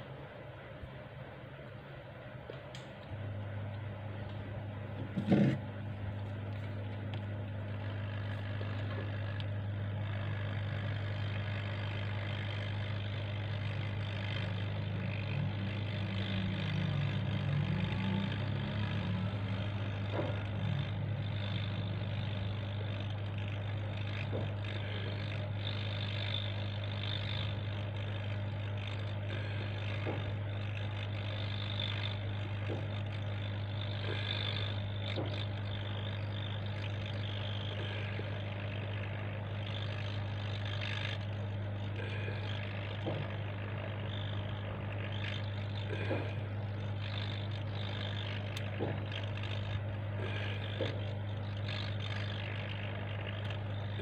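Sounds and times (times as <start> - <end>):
low hum: 0.0 - 54.0
hot air station blowing: 28.4 - 31.2, 36.6 - 54.0.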